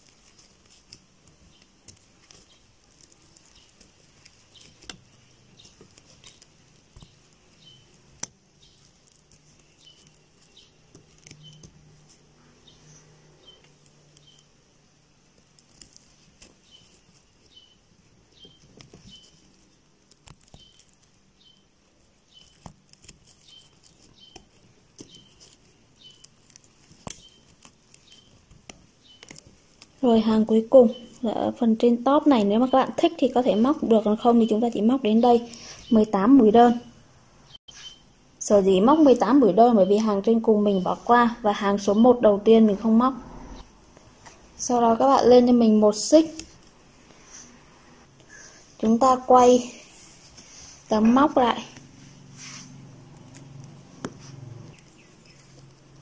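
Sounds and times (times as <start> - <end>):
faint rustling of yarn: 0.0 - 32.6, 43.9 - 56.0.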